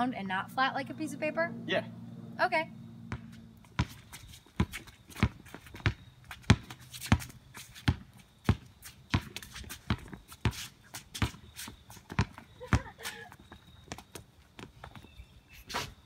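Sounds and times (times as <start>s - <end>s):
basketball bouncing on concrete: 3.0s - 15.1s
footsteps and shoe scuffs: 3.1s - 16.0s.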